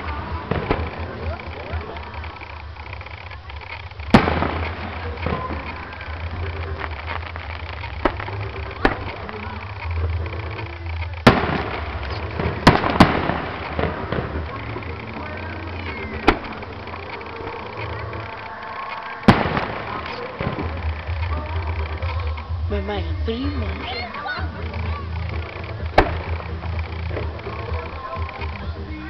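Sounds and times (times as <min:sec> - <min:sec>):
firework crackling: 0:00.0 - 0:29.0
firework shell bangs: 0:03.8 - 0:10.6, 0:11.2 - 0:17.5, 0:19.2 - 0:21.5, 0:25.8 - 0:27.4.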